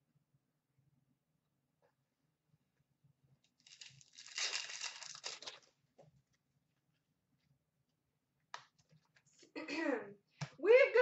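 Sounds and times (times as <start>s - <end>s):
wrapper crinkling and tearing: 3.6s - 5.7s.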